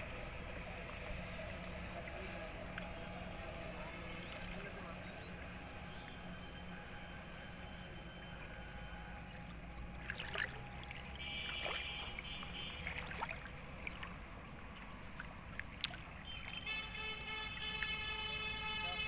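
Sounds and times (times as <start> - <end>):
water sloshing and trickling: 0.0 - 19.0
small splashes and knocks: 0.8 - 6.4, 9.4 - 18.1.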